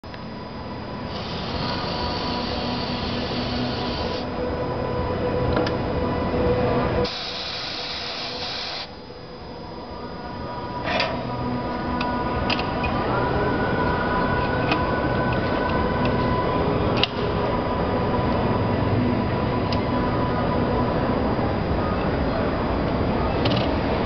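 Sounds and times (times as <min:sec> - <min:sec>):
compressed air hissing: 0:01.1 - 0:04.2, 0:07.0 - 0:08.9.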